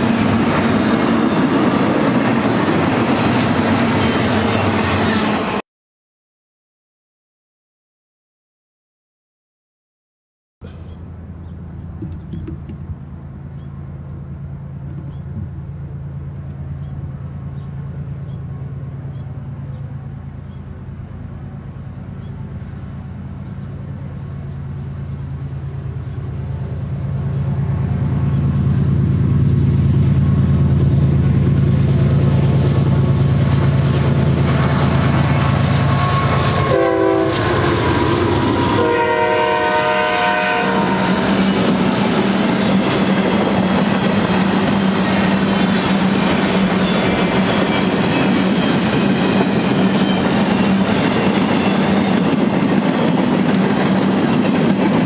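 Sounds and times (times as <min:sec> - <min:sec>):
train wheels clattering over rails: 0:00.0 - 0:05.4, 0:40.8 - 0:55.0
diesel locomotive engine drone: 0:00.0 - 0:05.6, 0:10.6 - 0:55.0
train horn blasts: 0:34.6 - 0:41.6.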